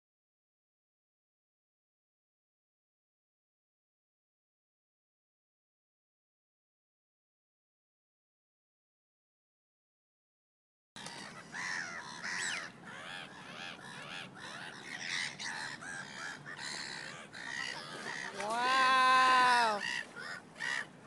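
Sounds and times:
birds chattering: 0:11.0 - 0:21.0
long drawn-out bird call: 0:11.0 - 0:21.0.

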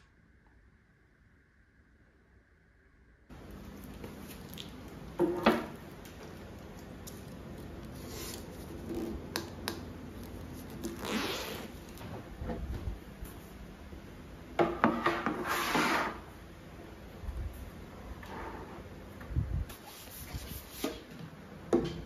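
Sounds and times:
frame parts scraping on table: 0:14.8 - 0:16.3.

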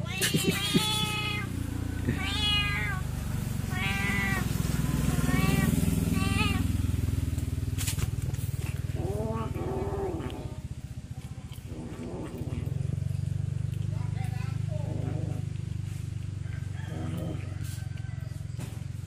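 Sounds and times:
kittens meowing: 0:00.0 - 0:06.7
steady low rumble: 0:00.1 - 0:17.5.

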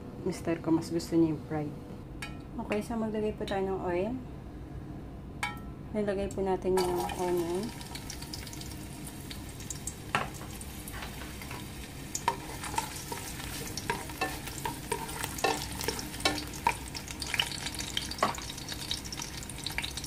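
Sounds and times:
oil crackling and popping: 0:06.8 - 0:20.0
onion sizzling in oil: 0:06.8 - 0:20.0.

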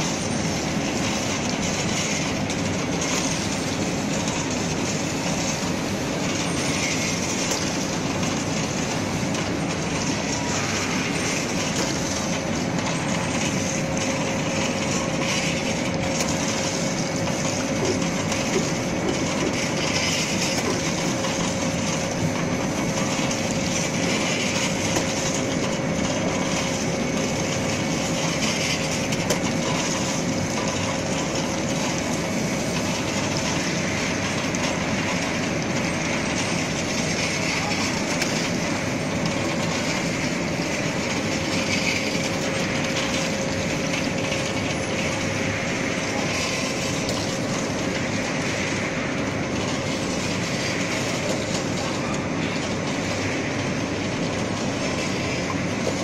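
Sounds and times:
conveyor machinery clatter and rumble: 0:00.0 - 0:56.0.

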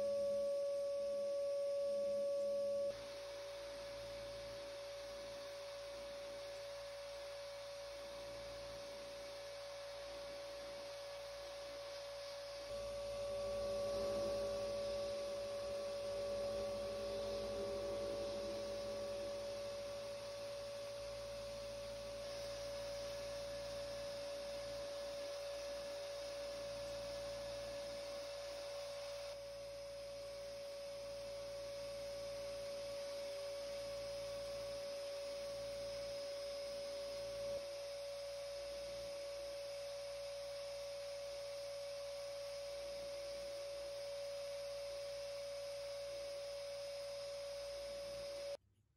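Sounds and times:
sandblasting cabinet humming: 0:03.0 - 0:36.1.

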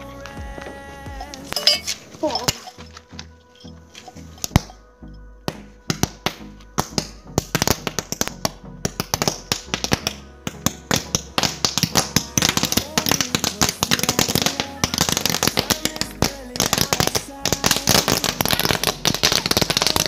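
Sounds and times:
toy caps popping in fire: 0:04.1 - 0:04.8, 0:05.5 - 0:20.0.

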